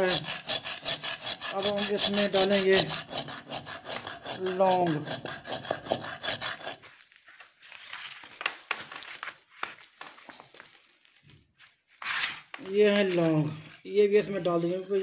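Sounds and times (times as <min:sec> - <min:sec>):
pestle grinding in a mortar: 0:00.0 - 0:06.9.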